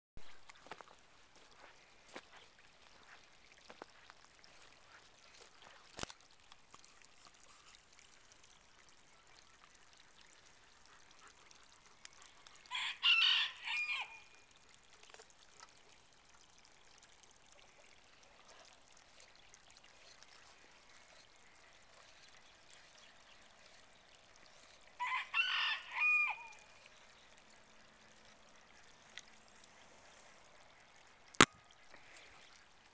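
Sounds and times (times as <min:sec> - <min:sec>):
rooster crowing: 0:12.7 - 0:14.3, 0:25.0 - 0:26.6.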